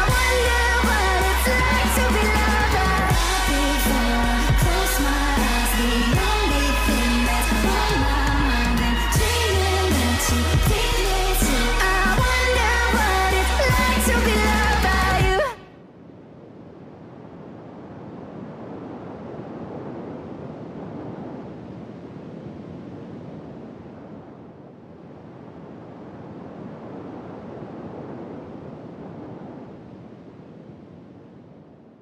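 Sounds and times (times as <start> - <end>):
sped-up pop song with singing: 0.0 - 15.7.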